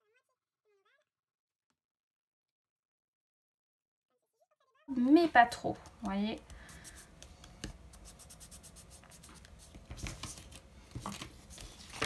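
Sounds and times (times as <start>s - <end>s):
light taps on paper: 5.7s - 8.2s, 9.0s - 12.0s
paper rubbing: 6.7s - 12.0s.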